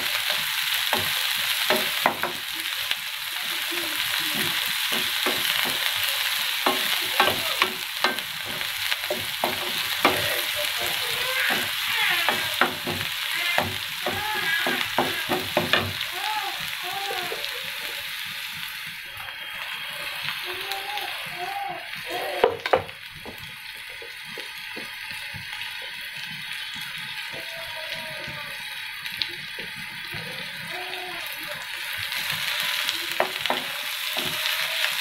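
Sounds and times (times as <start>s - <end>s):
onion sizzling in hot oil: 0.0s - 35.0s
spatula scraping and knocking pan: 4.3s - 16.0s, 33.2s - 34.6s.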